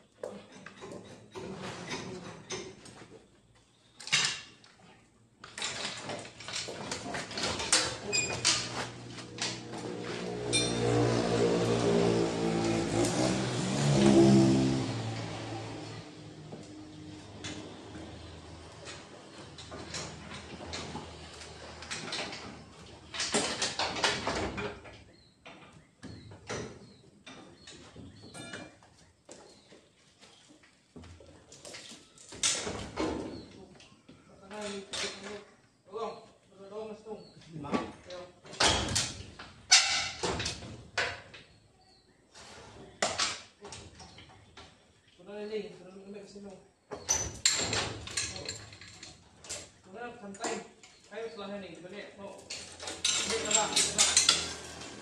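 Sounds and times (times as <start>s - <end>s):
chain hoist clicking and clanking: 5.4s - 15.8s, 47.1s - 49.8s, 52.4s - 55.0s
metal tools clinking: 10.4s - 11.2s, 47.2s - 49.7s, 52.4s - 55.0s.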